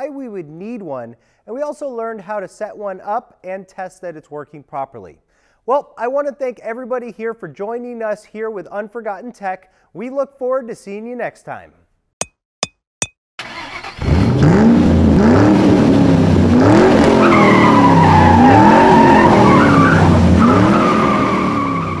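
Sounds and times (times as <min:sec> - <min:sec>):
car engine revving: 0:13.5 - 0:22.0.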